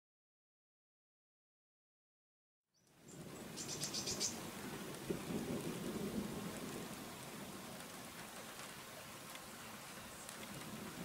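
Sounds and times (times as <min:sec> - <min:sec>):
steady rain hiss: 0:02.8 - 0:11.0
thunder rolling: 0:04.5 - 0:08.0.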